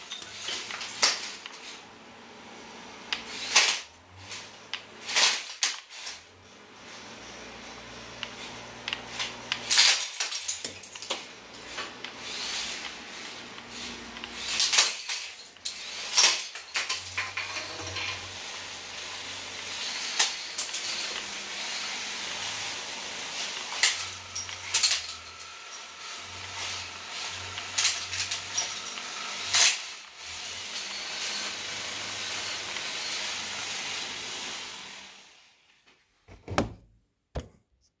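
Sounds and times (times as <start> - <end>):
robot motors whirring: 11.6 - 16.3.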